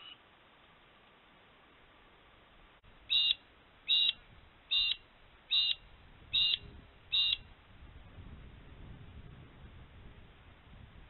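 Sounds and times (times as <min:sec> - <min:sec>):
bird calling: 0:00.0 - 0:00.2, 0:03.1 - 0:07.5.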